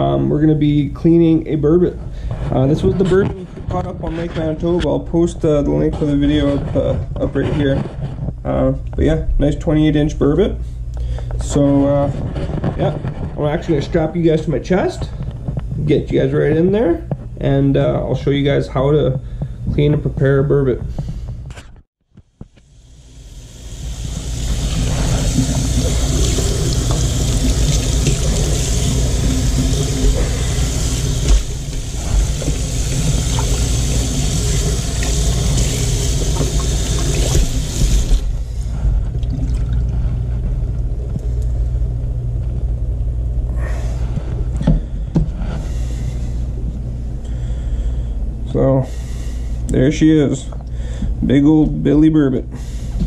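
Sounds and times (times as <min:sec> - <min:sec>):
tap water running into sink: 0:23.4 - 0:38.3.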